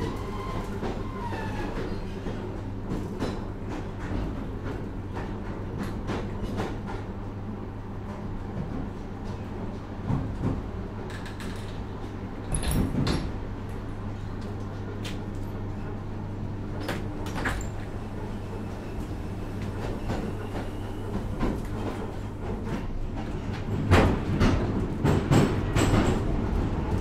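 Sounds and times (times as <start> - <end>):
train rumble and hum: 0.0 - 27.0
train wheel knocks: 22.6 - 26.4.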